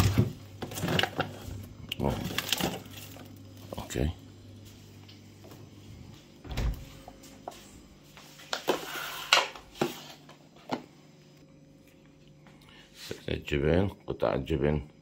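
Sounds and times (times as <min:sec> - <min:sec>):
refrigerator door thud: 0:06.4 - 0:06.8.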